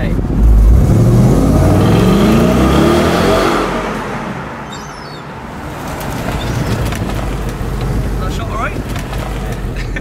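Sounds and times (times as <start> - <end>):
car engine revving past: 0.4 - 4.4.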